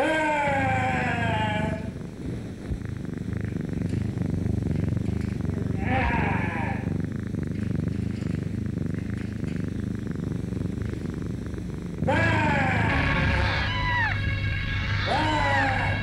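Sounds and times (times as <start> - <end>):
cat purring: 0.0 - 16.0
short meow-like cry: 12.2 - 14.4, 15.0 - 16.0.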